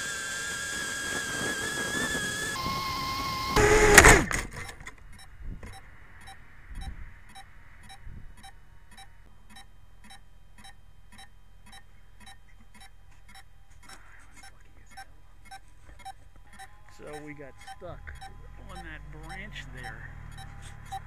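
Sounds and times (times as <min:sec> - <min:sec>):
drone motor whine: 0:00.0 - 0:21.0
drone crashing into branches: 0:03.2 - 0:04.7
faint even ticking: 0:05.1 - 0:21.0.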